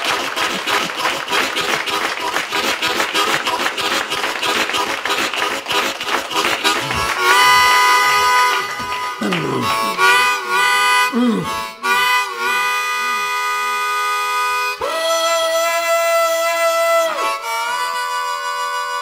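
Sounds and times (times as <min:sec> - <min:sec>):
harmonica chugging chords: 0:00.0 - 0:19.0
harmonica held bent chord: 0:00.3 - 0:19.0.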